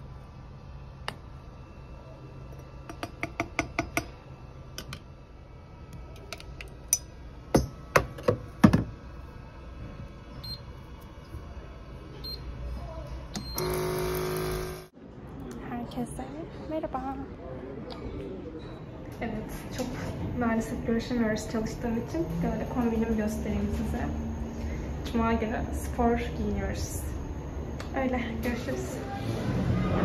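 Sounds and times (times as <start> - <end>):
coffee machine buzzing: 13.4 - 14.9.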